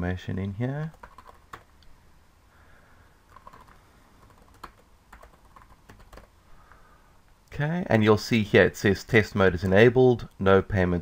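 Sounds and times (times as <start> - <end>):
faint keyboard typing: 0.4 - 1.9, 3.2 - 6.8.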